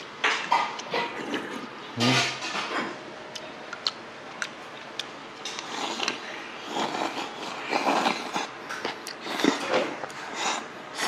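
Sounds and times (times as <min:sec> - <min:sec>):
slurping and chewing: 0:03.8 - 0:11.0.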